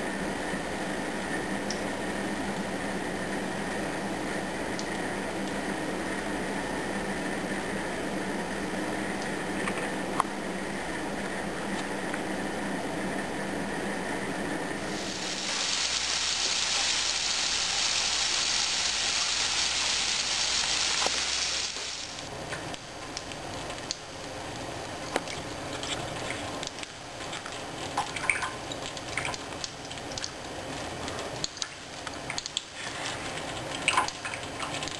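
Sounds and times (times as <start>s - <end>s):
water running from a faucet: 14.9s - 22.3s.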